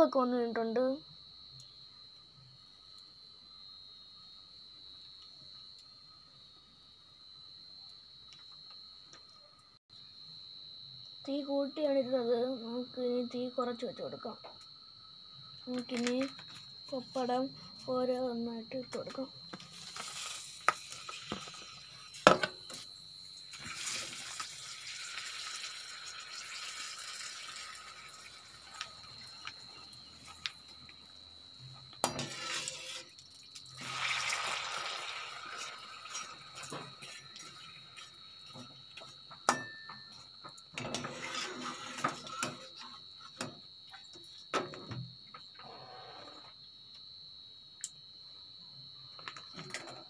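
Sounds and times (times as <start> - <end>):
food sizzling in hot oil: 19.6 - 31.1, 32.0 - 39.8
metal spoon clinking on pan: 39.5 - 40.2.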